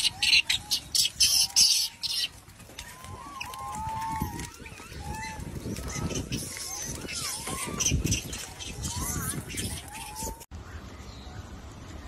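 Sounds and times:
harsh monkey call bursts: 0:00.0 - 0:02.3, 0:04.4 - 0:10.4
macaques coo calling: 0:00.0 - 0:10.5.

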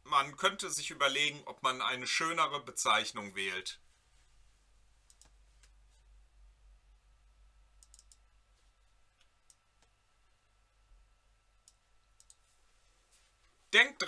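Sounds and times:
low steady hum: 0:00.0 - 0:14.0
mouse and keyboard clicks: 0:07.8 - 0:08.2.

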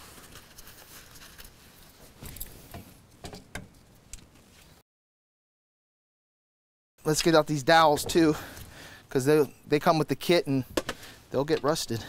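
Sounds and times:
cloth rubbing and scraping: 0:00.0 - 0:02.8.

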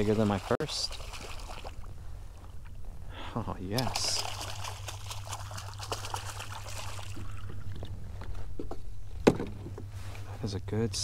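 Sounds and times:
fish splashing in water: 0:00.0 - 0:01.9, 0:03.8 - 0:07.8.

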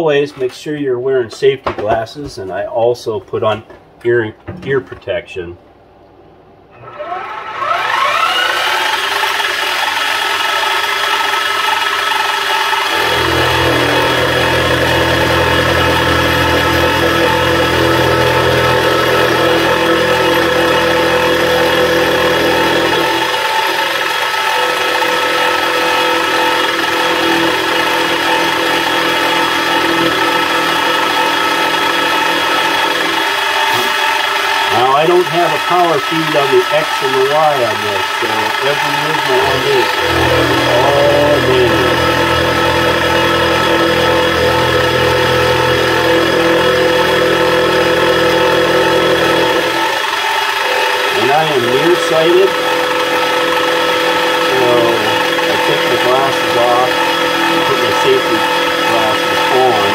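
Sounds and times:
small cooling fan: 0:05.7 - 0:59.9
end mill cutting: 0:06.7 - 0:59.9
milling machine motor whine: 0:06.7 - 0:59.9
low hum: 0:12.8 - 0:23.5, 0:36.4 - 0:50.0.

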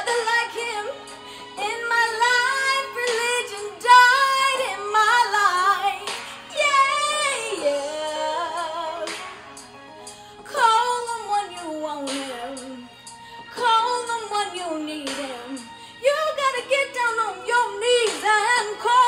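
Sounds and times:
woman singing gospel song: 0:00.0 - 0:09.5, 0:10.4 - 0:12.9, 0:13.5 - 0:19.0.

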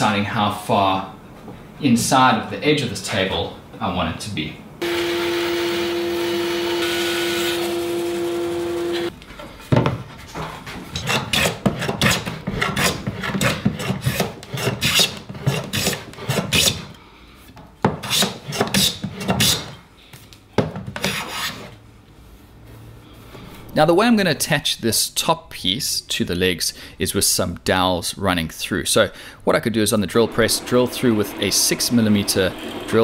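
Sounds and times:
power tool humming: 0:04.8 - 0:09.1, 0:30.3 - 0:33.0.

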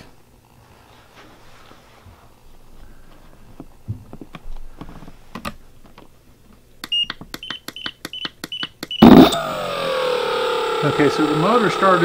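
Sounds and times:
short high beeps: 0:06.8 - 0:09.5.

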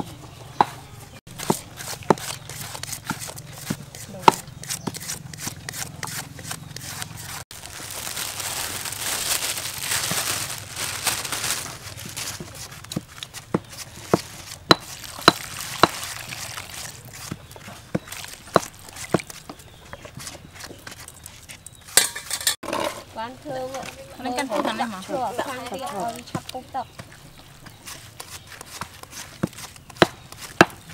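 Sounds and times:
grated coconut rustling: 0:01.3 - 0:19.4.

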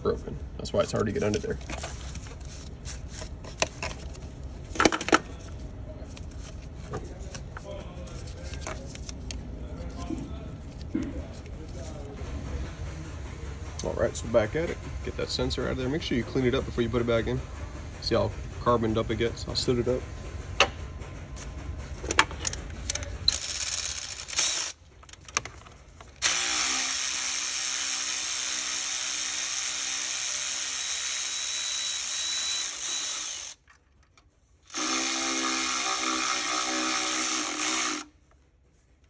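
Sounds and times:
electric ratchet running: 0:23.3 - 0:24.8, 0:26.2 - 0:33.7, 0:34.7 - 0:38.1.

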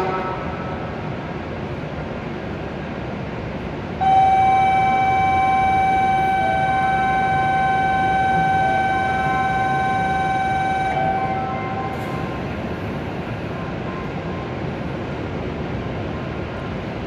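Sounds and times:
electronic warning tone: 0:04.0 - 0:12.6
short beeps: 0:04.0 - 0:12.6.

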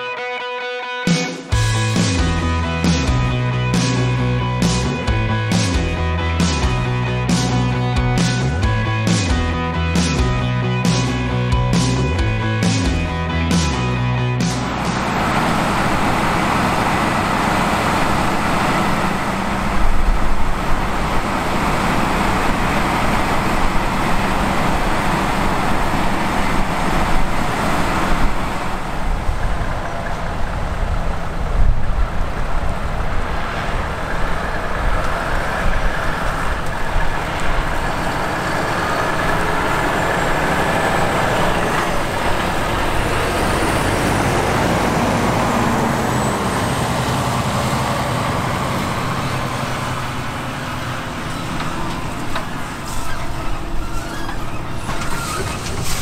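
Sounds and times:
tractor diesel engine under load: 0:01.5 - 0:56.0.

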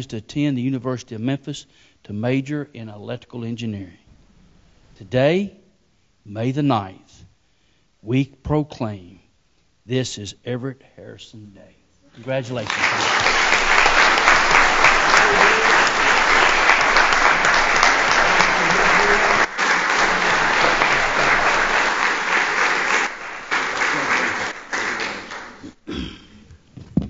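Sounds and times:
audience applauding: 0:12.5 - 0:25.8.

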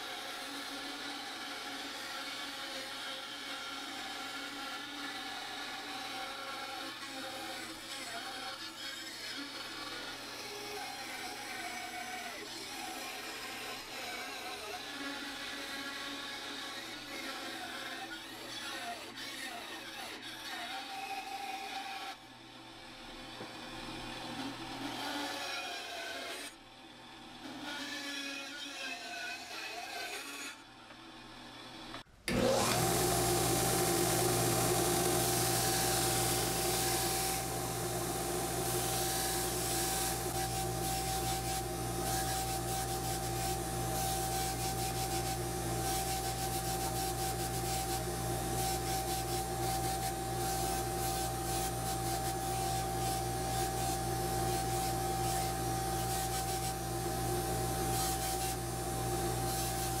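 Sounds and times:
belt grinder whining: 0:31.9 - 1:00.0
bandsaw cutting wood: 0:32.3 - 1:00.0
wood rubbing on sanding belt: 0:32.7 - 1:00.0.

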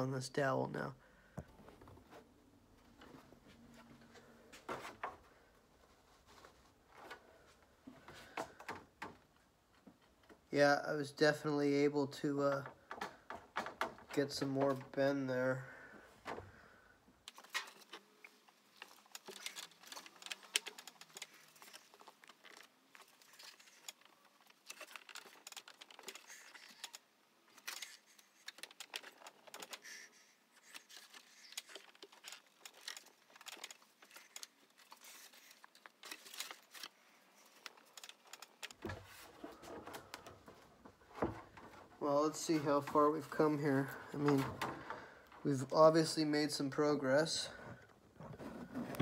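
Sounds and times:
rustles of hands working metal: 0:17.2 - 0:49.0.

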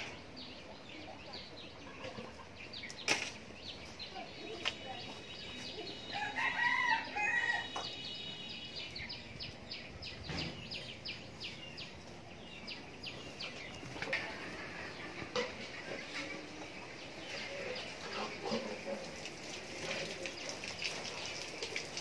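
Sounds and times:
small birds chirping: 0:00.0 - 0:22.0
rooster crowing: 0:06.1 - 0:07.8.

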